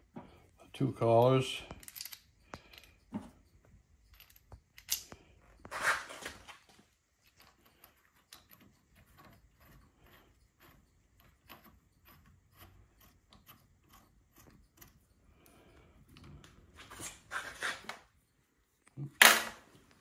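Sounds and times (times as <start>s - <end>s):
metal parts clicking and clinking: 1.5s - 6.3s, 7.2s - 15.0s.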